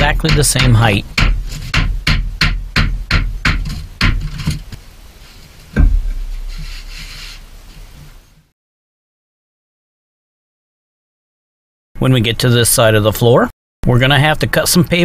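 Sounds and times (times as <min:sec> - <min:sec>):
heavy thud: 0:00.0 - 0:04.4, 0:05.8 - 0:07.9
sledgehammer striking wooden block: 0:00.0 - 0:04.5, 0:05.8 - 0:07.5
faint rustling: 0:03.7 - 0:08.4.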